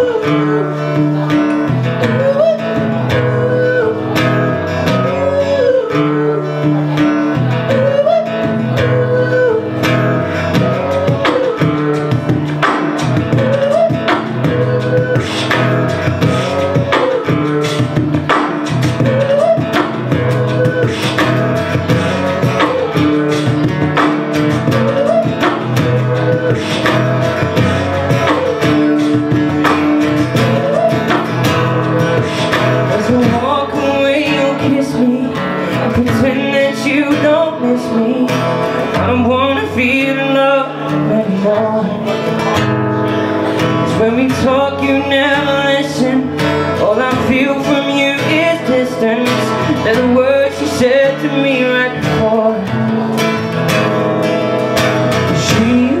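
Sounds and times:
acoustic guitar strumming: 0.0s - 56.0s
wavering melody line: 1.9s - 35.3s.

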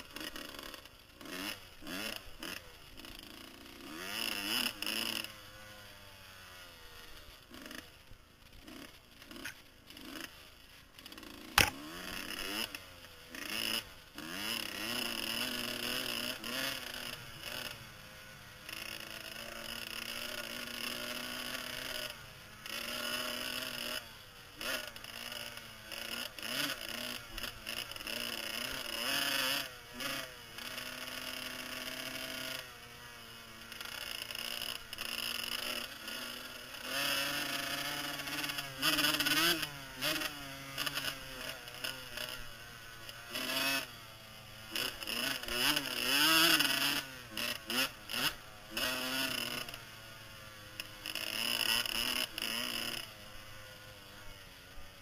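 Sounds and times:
motocross bike engine revving: 0.0s - 55.0s
sharp knock: 11.6s - 11.8s.

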